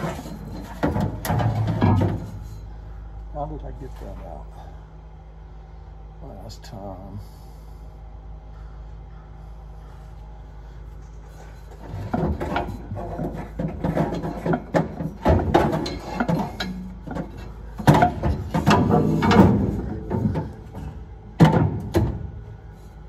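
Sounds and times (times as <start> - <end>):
metal clatter: 0.0 - 2.7, 11.6 - 22.3
metal knocks and scrapes: 0.0 - 2.7, 11.3 - 22.3.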